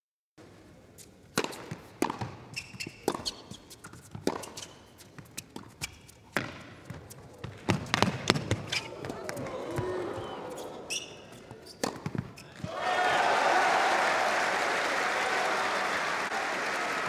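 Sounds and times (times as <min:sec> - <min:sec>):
shoes squeaking on court: 0:01.0 - 0:12.7
tennis ball bouncing: 0:01.3 - 0:12.8
racquet striking ball: 0:01.4 - 0:12.8.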